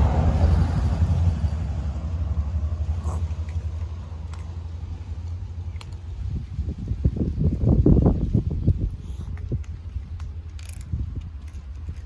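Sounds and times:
car passing by: 0:00.0 - 0:04.2
steady low rumble: 0:00.0 - 0:12.0.

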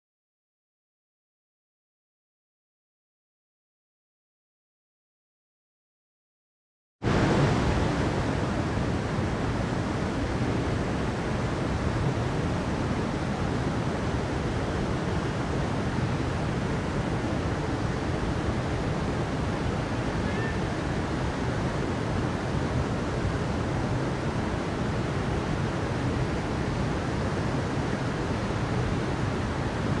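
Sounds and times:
stream rushing over rocks: 0:07.1 - 0:30.0.

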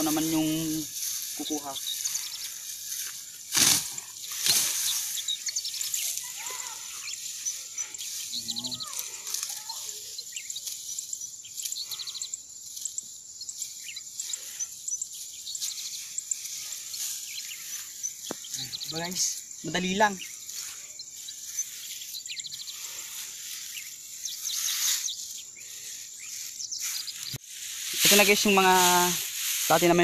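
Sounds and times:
dry grass rustling and tearing: 0:00.0 - 0:12.0, 0:13.6 - 0:30.0
high insect drone: 0:00.0 - 0:26.6.

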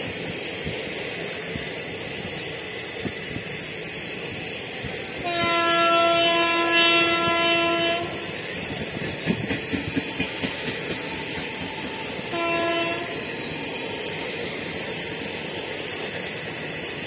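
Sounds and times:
train horn blasts: 0:05.2 - 0:08.3, 0:12.3 - 0:13.2
train wheels clattering on rail joints: 0:05.2 - 0:17.0.

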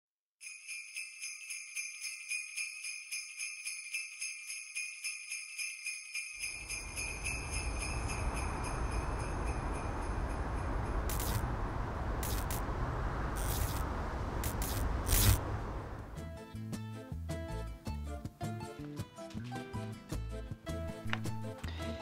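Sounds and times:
sleigh bells shaking: 0:00.4 - 0:13.8
city traffic rumble: 0:06.5 - 0:16.2.

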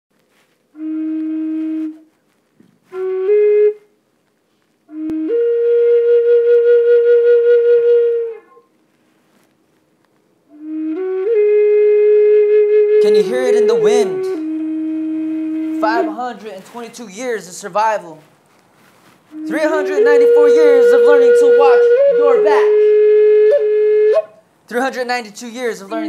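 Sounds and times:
flute playing slow melody: 0:00.3 - 0:04.0, 0:04.9 - 0:08.7, 0:10.5 - 0:16.2, 0:19.0 - 0:24.4.

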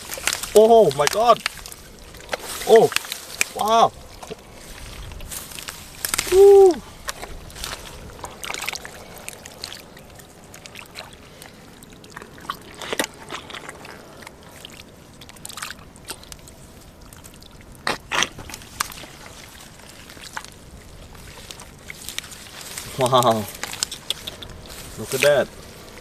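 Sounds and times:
rustling plant stems: 0:00.0 - 0:11.8, 0:18.2 - 0:26.0
hands squelching in wet mud: 0:00.0 - 0:26.0.

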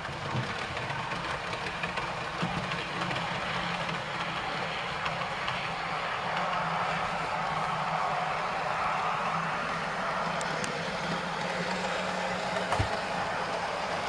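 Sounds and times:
model train wheels clicking on track: 0:00.0 - 0:14.0.

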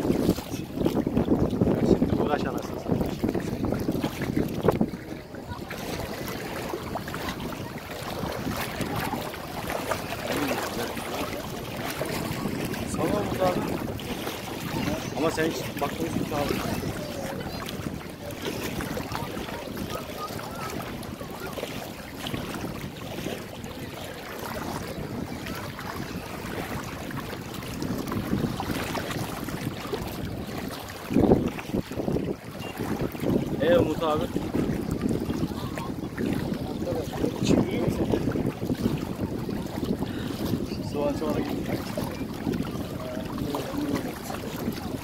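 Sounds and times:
shallow sea water washing: 0:00.0 - 0:45.0
wind on microphone: 0:00.0 - 0:45.0
faint distant voices: 0:04.9 - 0:26.8.

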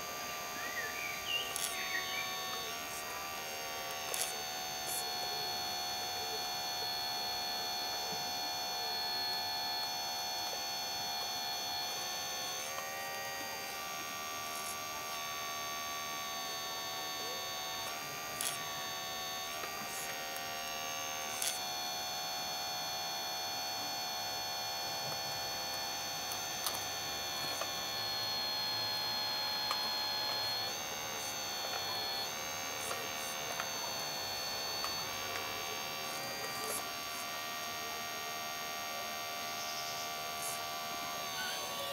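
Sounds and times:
hydraulic pump motor whining: 0:00.0 - 0:41.9
short clicks: 0:01.3 - 0:02.6.

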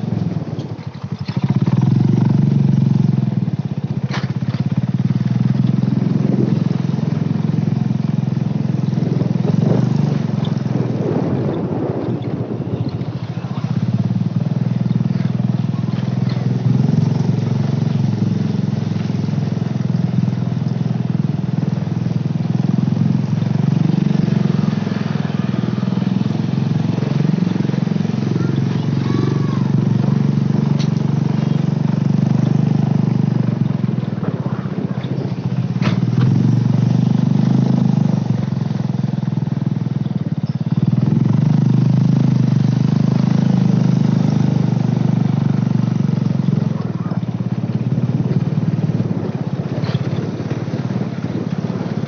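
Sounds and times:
motorcycle engine droning: 0:00.0 - 0:52.0.

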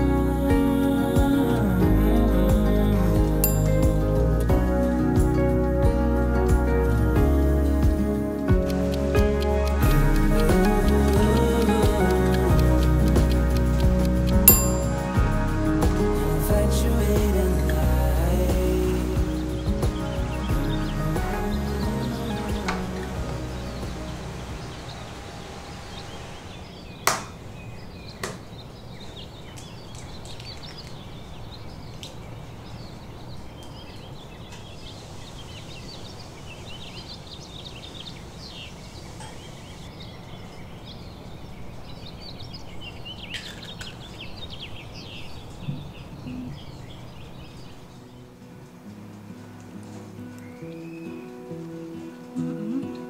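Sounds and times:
birds chirping: 0:00.0 - 0:15.2, 0:16.4 - 0:53.0
steady hiss: 0:00.0 - 0:27.6, 0:28.8 - 0:41.8.

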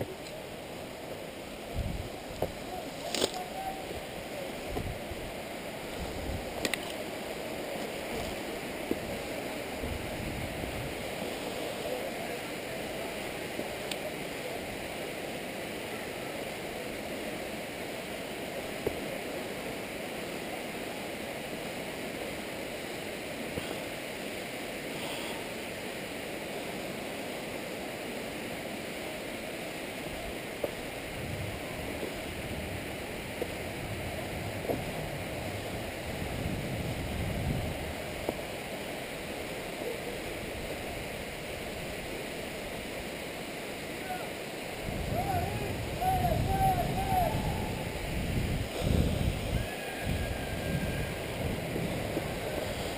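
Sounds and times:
steady outdoor rushing noise: 0:00.0 - 0:52.9.

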